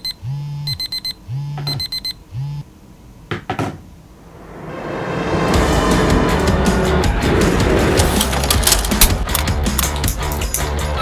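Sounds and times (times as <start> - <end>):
phone alarm beeps: 0.0 - 2.6.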